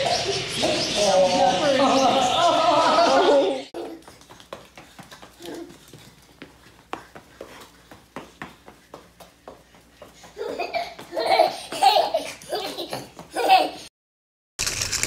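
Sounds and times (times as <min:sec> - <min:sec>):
hearty laughter: 0:01.6 - 0:03.7.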